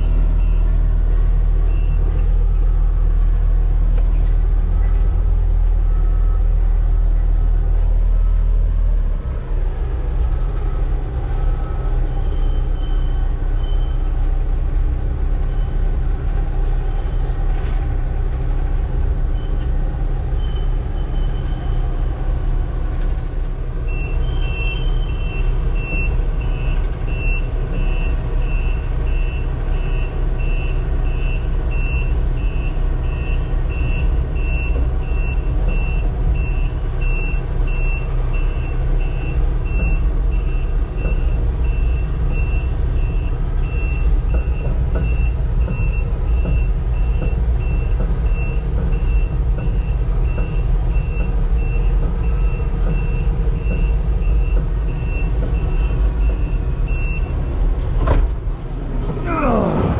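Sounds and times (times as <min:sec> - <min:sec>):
diesel engine rumbling: 0:00.0 - 0:59.9.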